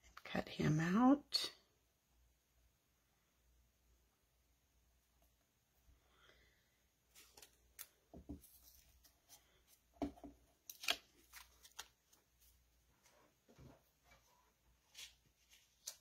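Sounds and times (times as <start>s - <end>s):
cardstock rustling: 10.6s - 12.6s.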